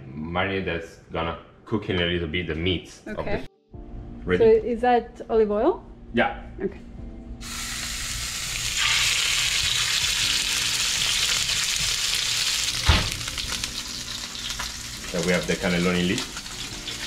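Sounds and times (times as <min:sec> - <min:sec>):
fish sizzling in oil: 0:07.4 - 0:17.0.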